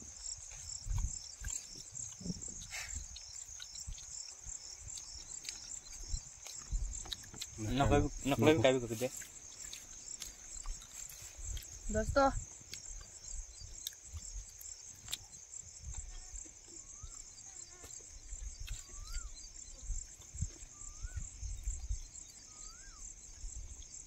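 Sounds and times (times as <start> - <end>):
wind rumble on microphone: 0.0 - 3.2, 5.9 - 8.7, 11.4 - 12.6, 18.4 - 22.2
insects trilling: 0.0 - 24.0
bird whistling: 18.8 - 19.4, 20.7 - 21.3, 22.4 - 23.0.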